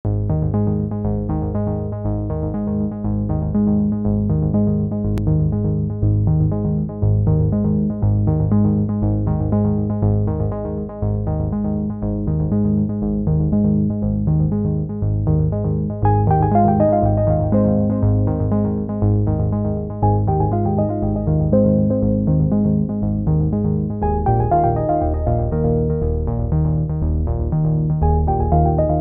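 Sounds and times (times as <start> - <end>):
steady bass line: 0.1 - 29.0
synthesizer repeating notes: 16.1 - 23.2, 24.0 - 26.5, 28.0 - 29.0.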